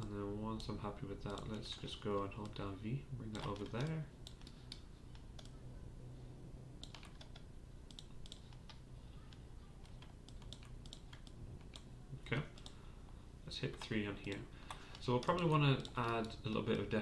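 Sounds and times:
keyboard and mouse clicking: 0.0 - 2.6, 3.3 - 5.6, 6.8 - 11.9, 12.5 - 12.8, 13.8 - 16.8
low steady hum: 0.0 - 17.0.

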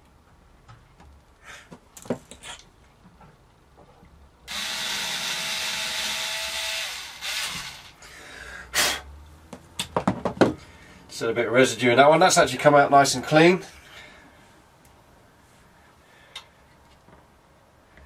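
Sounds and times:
cordless drill whine: 4.5 - 8.0.

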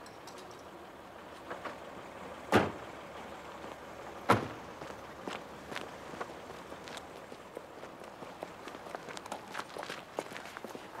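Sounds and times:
car doors slamming: 2.5 - 2.8, 4.3 - 4.6
faint footsteps on pavement: 3.4 - 11.0.

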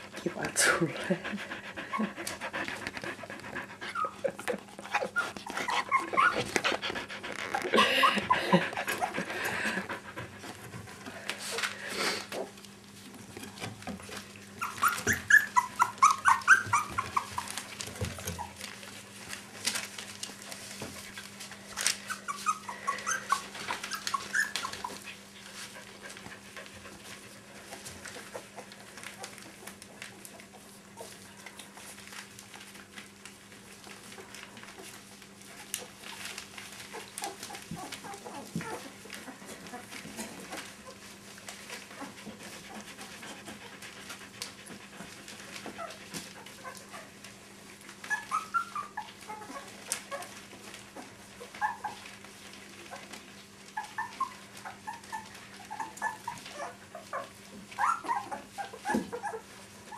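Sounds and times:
small dogs whining and yipping: 3.9 - 9.2, 14.6 - 17.6, 22.0 - 25.0, 48.0 - 50.3, 51.0 - 52.1, 53.7 - 59.9.

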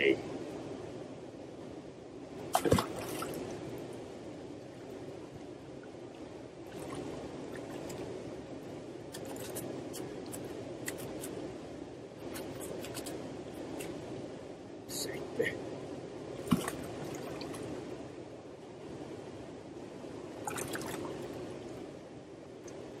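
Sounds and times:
running water: 2.4 - 3.9, 16.3 - 18.0, 20.4 - 21.4
fish splashing into river: 2.5 - 3.4, 16.4 - 16.9.

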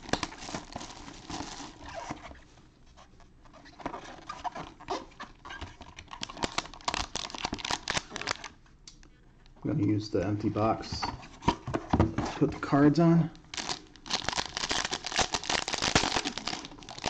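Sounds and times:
plastic wrap crinkling: 0.0 - 2.5, 3.6 - 8.6, 13.4 - 17.0
foil wrapper handled: 6.0 - 8.6, 13.5 - 17.0.

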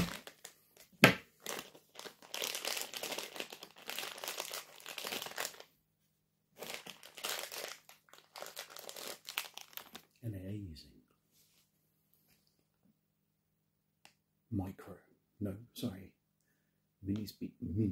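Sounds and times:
plastic bag crinkling: 0.0 - 5.7, 6.6 - 10.2.

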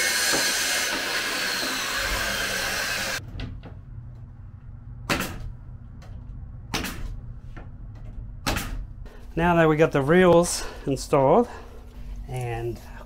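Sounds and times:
drill driving a screw: 0.0 - 3.2
power saw cutting: 0.0 - 3.2.

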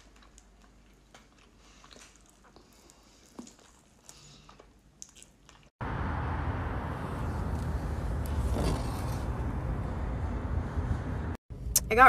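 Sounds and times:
person chewing: 0.0 - 5.7.

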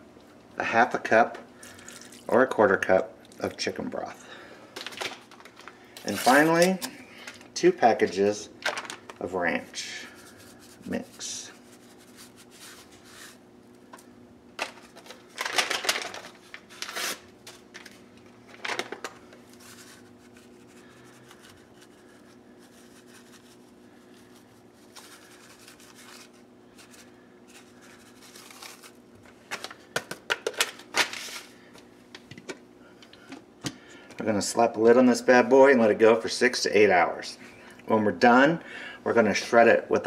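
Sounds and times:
paper packets rustling and crinkling: 4.8 - 7.5, 14.6 - 31.7.

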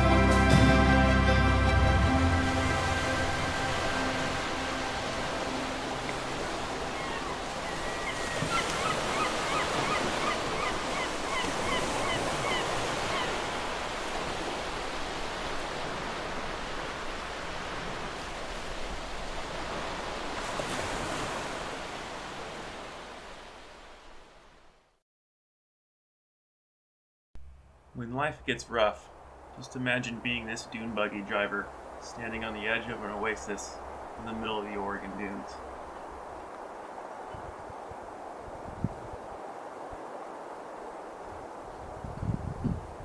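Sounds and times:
ocean surf washing on shore: 0.0 - 24.7, 28.5 - 43.0
bird calls: 6.3 - 13.6.

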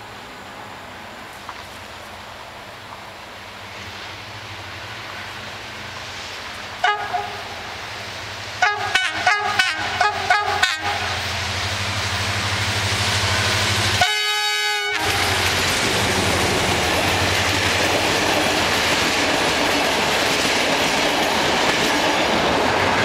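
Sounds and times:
train rumble: 0.0 - 23.0
locomotive horn toots: 6.8 - 7.7, 8.6 - 11.2, 14.0 - 15.5.

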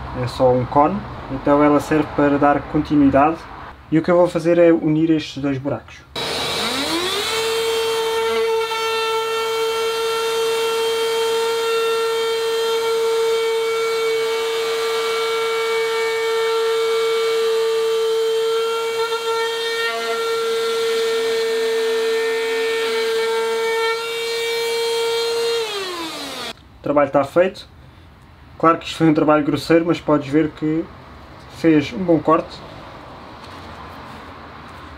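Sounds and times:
drywall cutter whining: 6.2 - 26.6.

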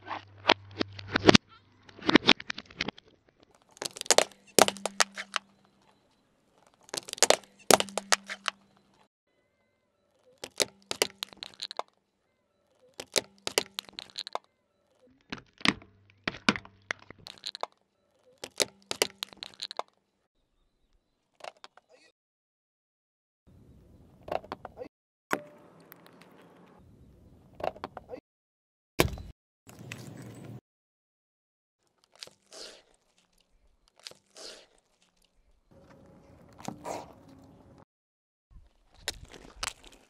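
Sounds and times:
tyre crushing bottles and jars: 3.6 - 5.7, 6.6 - 8.8, 10.4 - 11.9, 13.0 - 14.4.

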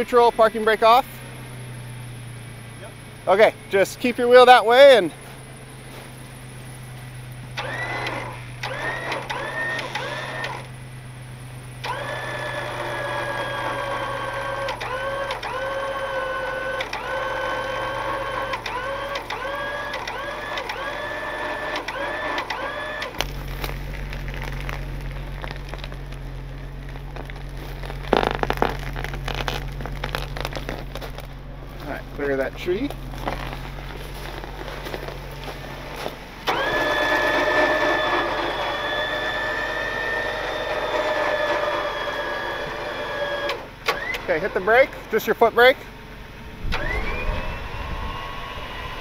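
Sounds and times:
low engine hum: 0.0 - 49.0
electric winch whining: 7.5 - 11.0, 11.8 - 24.7, 35.7 - 45.0, 46.6 - 49.0.

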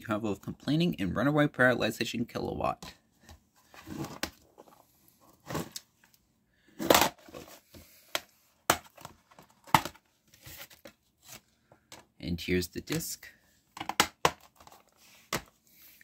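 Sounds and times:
plastic case rustling and clicking: 6.8 - 12.1, 13.7 - 15.6.

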